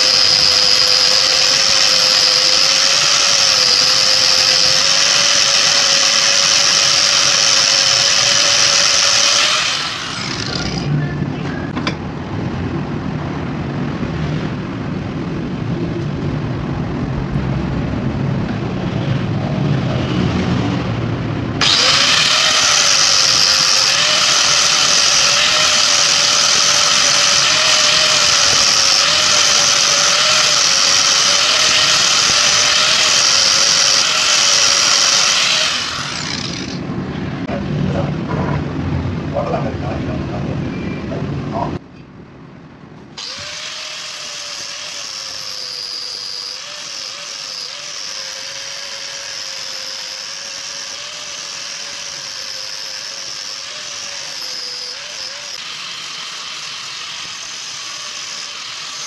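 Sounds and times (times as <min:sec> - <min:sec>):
angle grinder grinding metal: 0:00.0 - 0:11.1, 0:21.6 - 0:36.8, 0:43.2 - 0:59.0.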